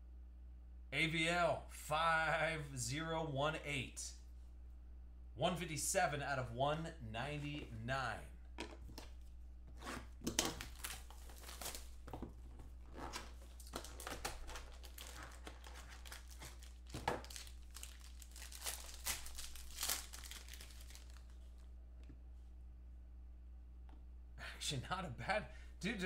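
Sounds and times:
foil and plastic packaging crinkling: 0:10.2 - 0:21.6.

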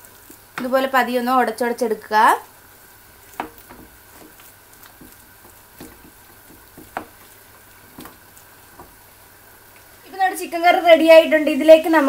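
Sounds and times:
ladle knocking and scraping pot: 0:03.3 - 0:09.0.

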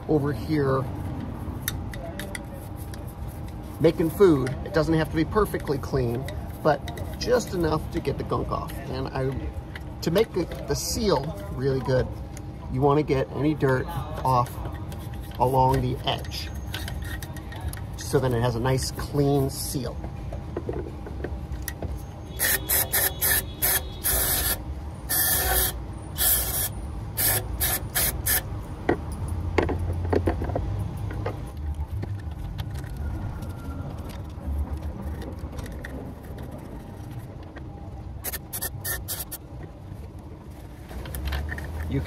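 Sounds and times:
aerosol spray hissing bursts: 0:38.2 - 0:39.4.

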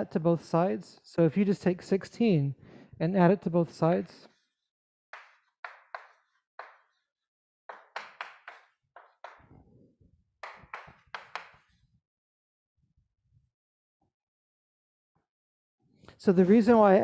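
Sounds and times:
chalk tapping on chalkboard: 0:04.2 - 0:09.5, 0:10.4 - 0:11.8.

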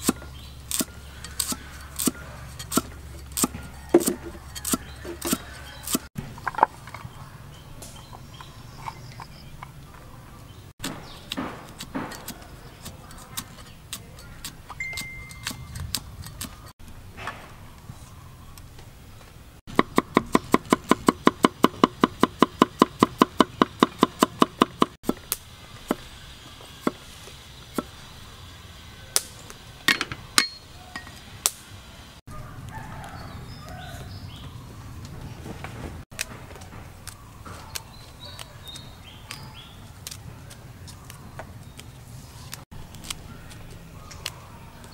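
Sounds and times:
cleaver chopping on wooden board: 0:00.0 - 0:06.1, 0:19.7 - 0:25.2.

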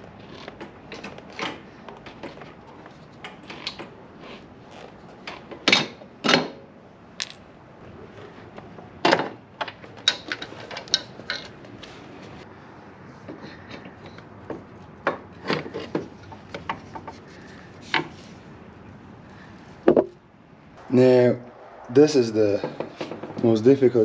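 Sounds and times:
metal tools clinking on concrete: 0:07.2 - 0:07.6.

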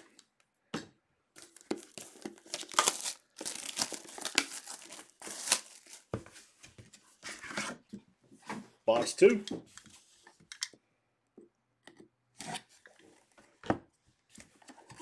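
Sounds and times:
plastic wrap crinkling and tearing: 0:01.4 - 0:06.1.

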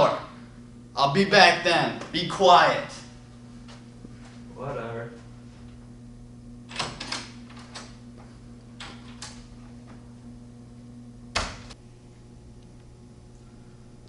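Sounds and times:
door shutting thud: 0:11.3 - 0:11.8.

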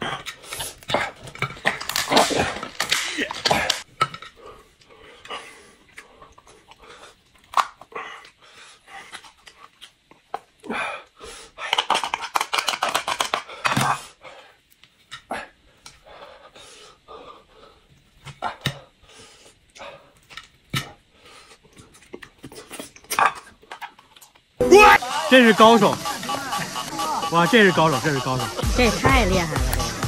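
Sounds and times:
shell crackling: 0:00.6 - 0:03.9.

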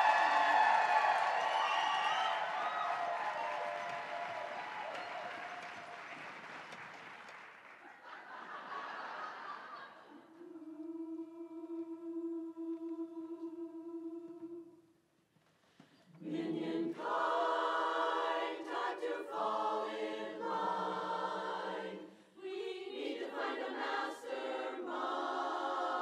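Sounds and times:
women's chorus singing a cappella: 0:09.9 - 0:14.9, 0:16.2 - 0:26.0.

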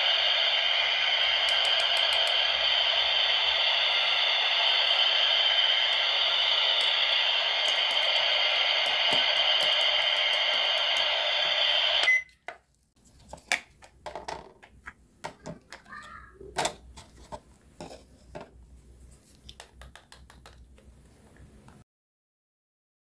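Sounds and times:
steady electronic toy sound: 0:00.0 - 0:12.2
short electronic beep: 0:12.0 - 0:12.3.

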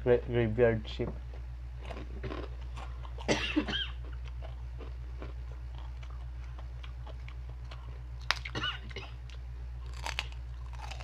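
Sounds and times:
steady low hum: 0:00.0 - 0:11.0
faint crunchy chewing: 0:01.3 - 0:11.0
person coughing: 0:03.2 - 0:04.0, 0:08.5 - 0:09.2.

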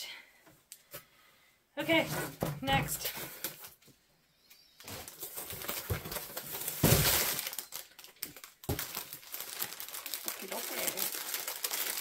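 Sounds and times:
plastic crinkling: 0:04.8 - 0:12.0
cardboard box crackling: 0:04.9 - 0:12.0.

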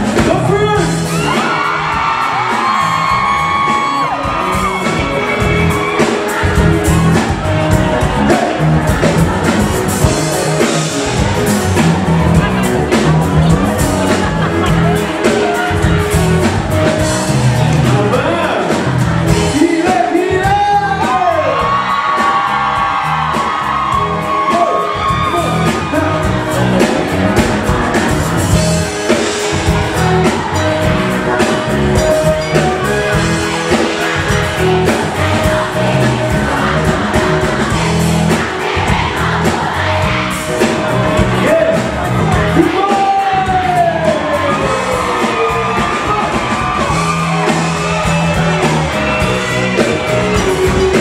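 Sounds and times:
lead vocal singing: 0:00.0 - 0:51.0
live band playing pop song: 0:00.0 - 0:51.0.

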